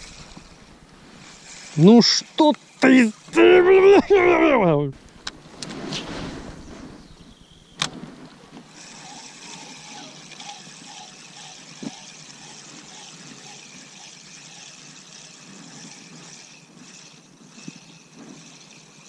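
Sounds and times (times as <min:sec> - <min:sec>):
fishing reel whirring: 0:00.0 - 0:04.6, 0:08.5 - 0:19.0
sharp click: 0:07.8 - 0:08.0.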